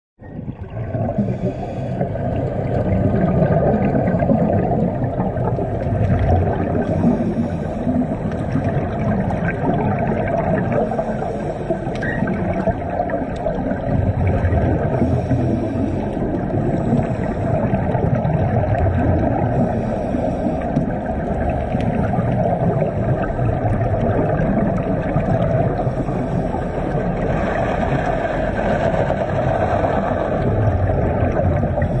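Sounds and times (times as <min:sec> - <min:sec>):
diver's exhaled air bubbling: 0:00.2 - 0:32.0
muffled underwater rumble: 0:00.2 - 0:32.0.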